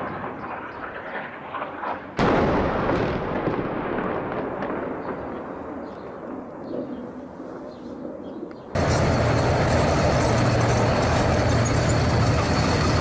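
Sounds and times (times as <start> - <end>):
explosion blast and rumble: 0.0 - 5.7.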